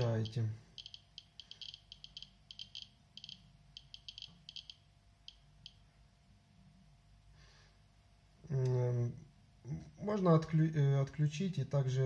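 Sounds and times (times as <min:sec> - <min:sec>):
dosimeter clicks: 0:00.0 - 0:05.8.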